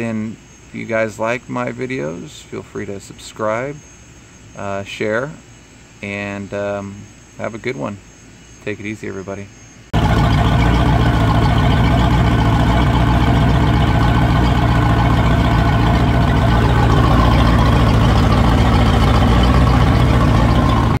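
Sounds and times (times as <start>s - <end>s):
boat engine idling: 10.0s - 21.0s
water splashing from exhaust: 10.0s - 21.0s.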